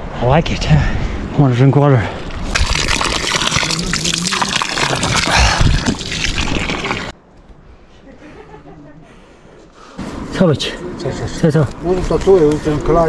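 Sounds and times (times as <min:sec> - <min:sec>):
water gushing from a pipe: 0:02.5 - 0:07.1.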